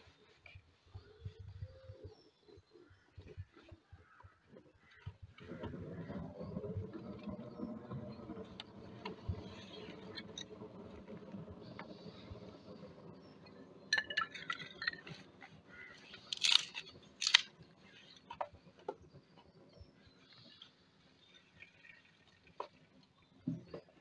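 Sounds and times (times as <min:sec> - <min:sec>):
kindling clattering and snapping: 0:14.2 - 0:19.0.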